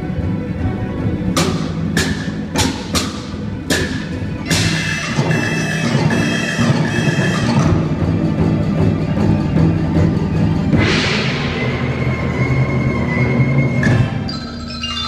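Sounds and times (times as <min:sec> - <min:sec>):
ringing percussion strikes: 0:01.4 - 0:08.1
sustained high tones: 0:04.4 - 0:07.8.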